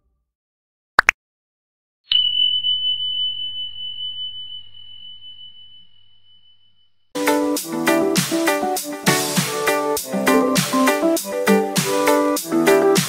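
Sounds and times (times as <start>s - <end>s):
high bell ding: 2.1s - 6.9s.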